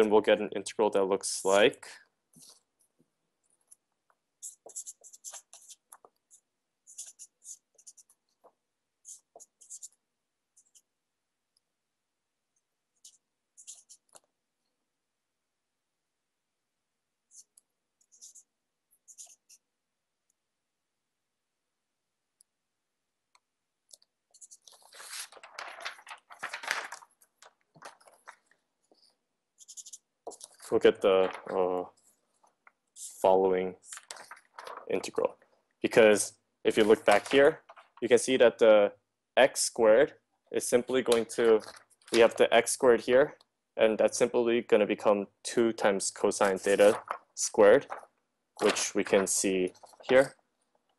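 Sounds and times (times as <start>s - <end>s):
pen scratching on paper: 4.4s - 8.3s, 9.0s - 10.0s, 10.6s - 10.9s, 13.0s - 14.2s, 17.3s - 19.7s, 24.3s - 25.3s, 29.6s - 30.8s
paper rustling and crinkling: 24.4s - 28.6s, 30.3s - 33.2s, 33.8s - 35.3s, 36.8s - 38.1s, 40.9s - 42.4s, 46.3s - 50.3s.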